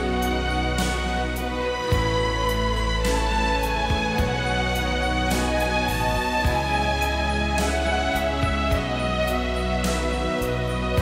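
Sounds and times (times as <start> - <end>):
instrumental background music: 0.0 - 11.0.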